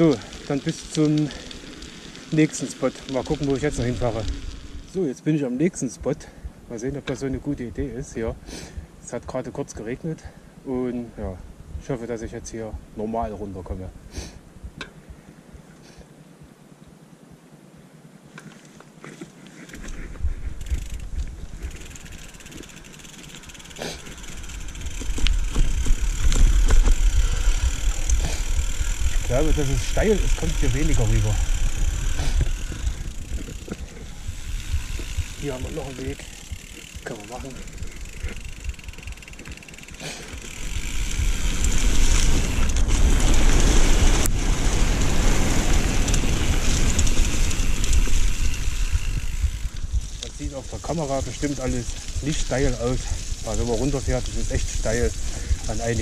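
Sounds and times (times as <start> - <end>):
bike clicks and rattles: 0.0 - 5.0, 18.3 - 56.0
wind on camera: 10.9 - 15.7, 19.8 - 22.9, 24.1 - 39.7, 40.3 - 56.0
tyre rumble on dirt: 19.0 - 56.0.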